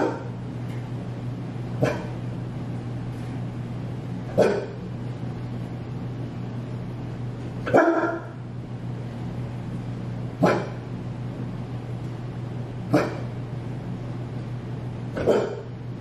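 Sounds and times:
dog barking: 0.0s - 0.4s, 1.8s - 2.2s, 4.3s - 4.8s, 7.7s - 8.4s, 10.4s - 10.8s, 12.9s - 13.3s, 15.2s - 15.7s.

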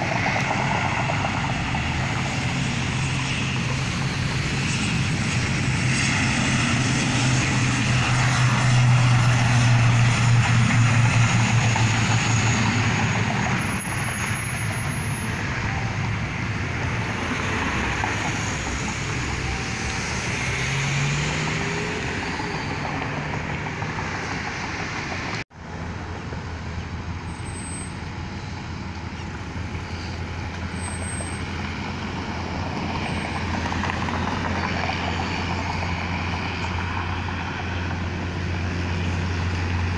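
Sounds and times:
cars driving past: 0.0s - 39.9s
low engine drone: 0.0s - 39.9s.

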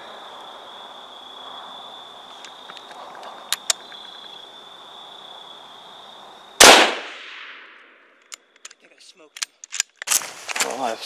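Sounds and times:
rifle shot with echo: 6.6s - 7.8s.

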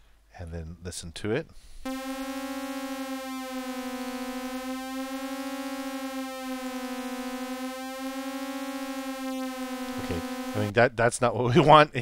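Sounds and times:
buzzy synth tone with vibrato: 1.9s - 10.7s.

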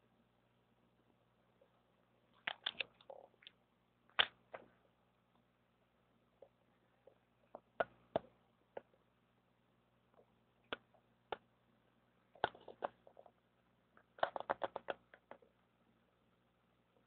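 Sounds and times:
faint low hum: 0.0s - 17.0s
sharp clicks and taps: 2.4s - 4.7s, 6.4s - 9.0s, 14.0s - 15.5s.

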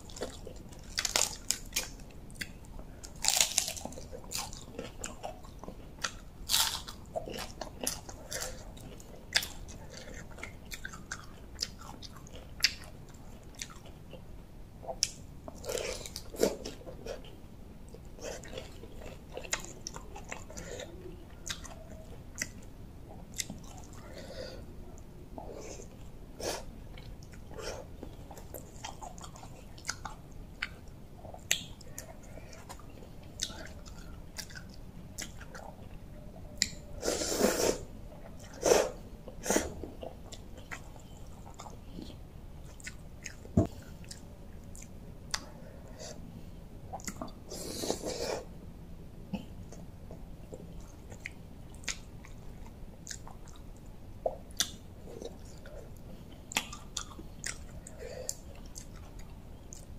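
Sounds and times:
person chewing wetly: 0.0s - 24.2s, 26.9s - 36.9s, 39.2s - 45.6s, 46.9s - 48.0s, 49.3s - 59.9s.

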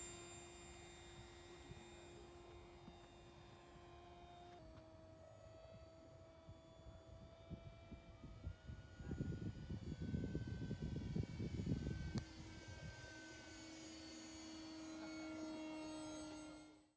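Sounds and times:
electric motor and propeller whining: 0.0s - 16.9s
wind buffeting microphone: 6.4s - 12.9s.

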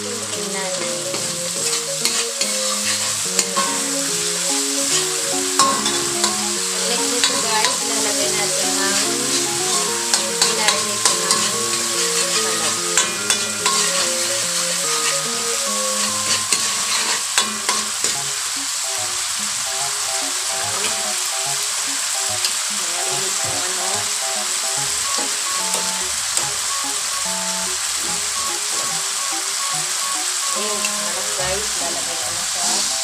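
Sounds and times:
background music with held notes: 0.0s - 33.0s
sauce sizzling in a wok: 0.0s - 33.0s
ladle scraping a pan: 1.7s - 3.8s, 9.2s - 18.2s.

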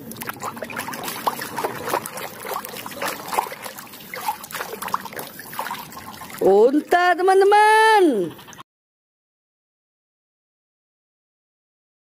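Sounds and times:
hand scrubbing toy underwater: 0.0s - 7.0s
water dripping: 0.0s - 7.0s
water splashing in a plastic tub: 0.0s - 8.2s.

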